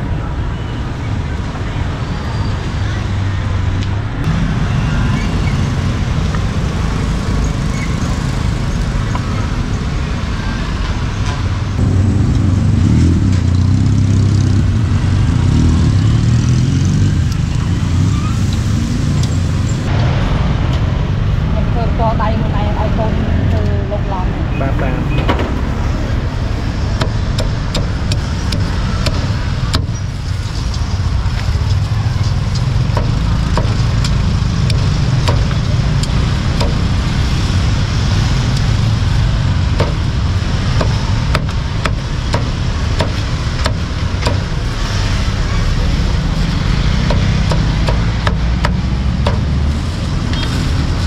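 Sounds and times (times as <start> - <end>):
street traffic rumble: 0.0 - 51.0
cleaver chopping on a board: 47.0 - 49.5.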